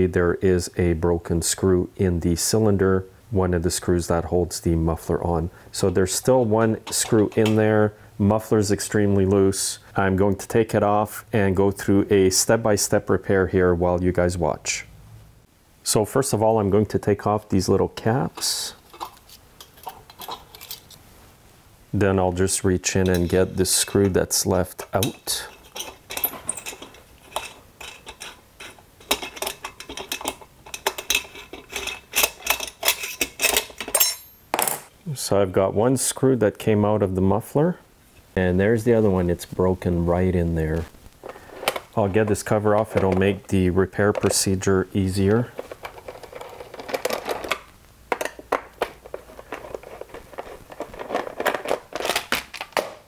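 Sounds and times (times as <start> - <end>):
cover scraping: 40.7 - 43.5, 45.3 - 53.0.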